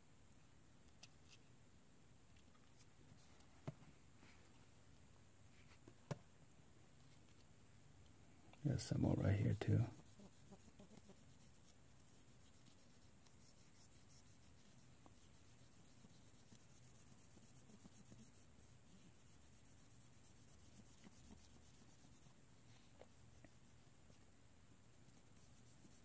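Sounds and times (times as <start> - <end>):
cotton swab rubbing metal: 9.3 - 22.4, 25.0 - 26.0.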